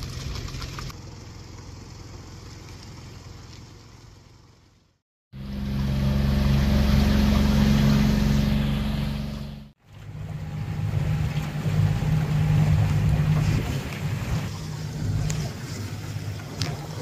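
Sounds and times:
outboard motor running: 5.4s - 17.0s
water rushing: 5.4s - 17.0s.

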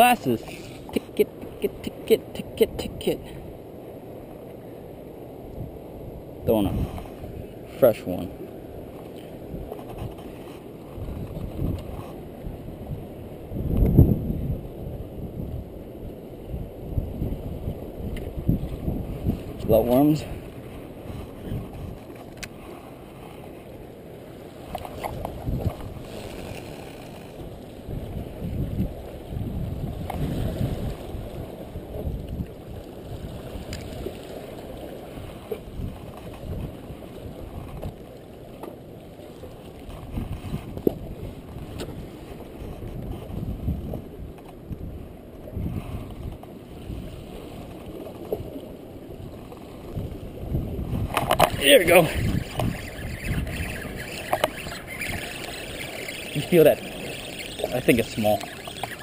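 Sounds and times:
wind rumbling on microphone: 0.0s - 59.0s
water sloshing against rocks: 46.4s - 59.0s.

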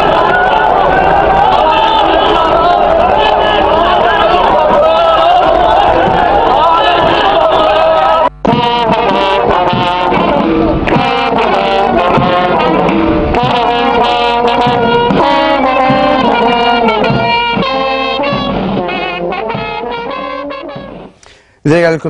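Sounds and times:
brass band playing a march: 0.0s - 21.2s.

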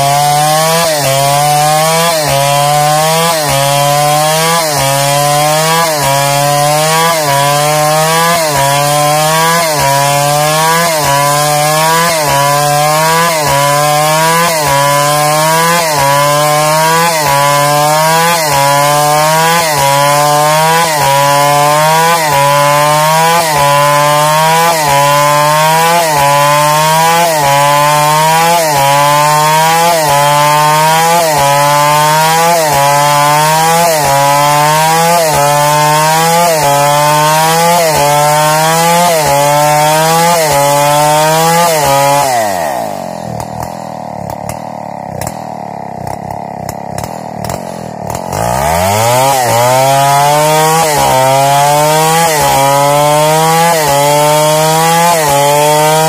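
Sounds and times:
chainsaw cutting a log: 0.0s - 56.0s.

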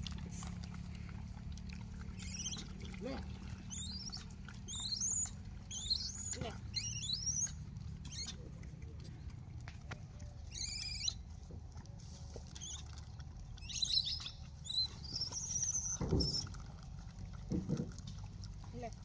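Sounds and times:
squeaky animal calls: 2.2s - 2.7s, 3.7s - 8.4s, 10.5s - 11.2s, 13.6s - 16.4s.

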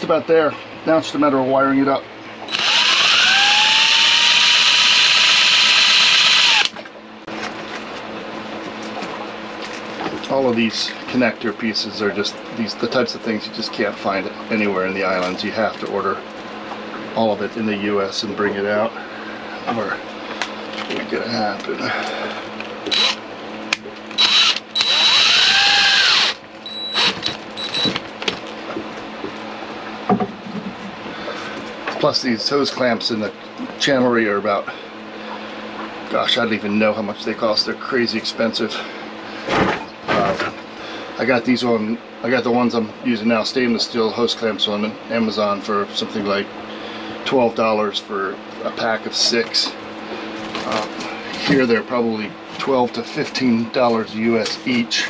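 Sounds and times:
power drill motor whine: 2.5s - 6.8s, 22.8s - 23.2s, 24.1s - 28.0s.

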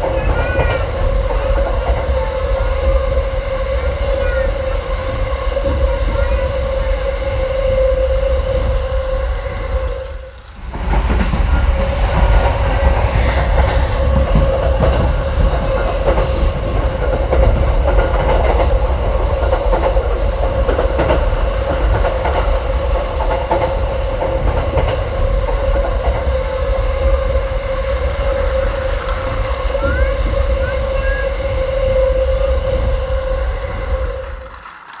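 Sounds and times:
wheels clattering over track: 0.0s - 26.4s, 27.0s - 31.0s, 32.6s - 35.0s
toy train motor whine: 33.4s - 35.0s.

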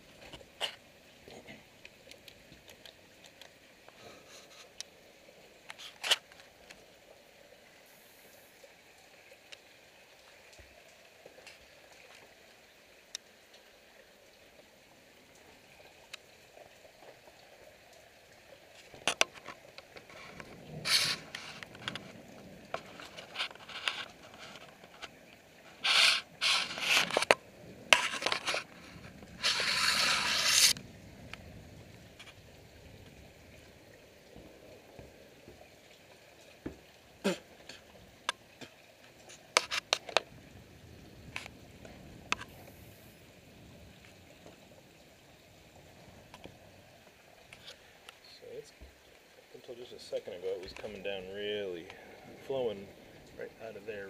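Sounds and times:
faint background hiss: 0.0s - 54.0s
rustling and scraping handling: 19.1s - 22.2s, 22.8s - 30.8s.

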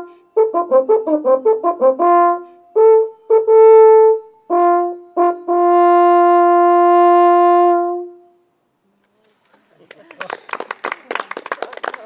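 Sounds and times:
wooden horn playing: 0.0s - 8.5s.

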